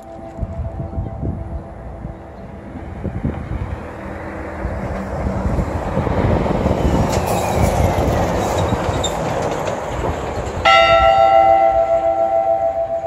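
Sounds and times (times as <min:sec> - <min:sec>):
sustained chord of steady tones: 0:00.0 - 0:03.3, 0:10.7 - 0:13.0.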